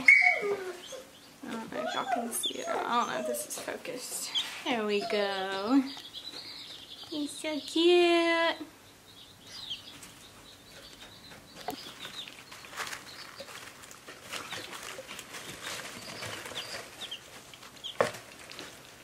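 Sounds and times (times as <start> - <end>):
chicks and ducklings peeping: 0.0 - 19.0
rustling in wood shavings: 11.7 - 19.0.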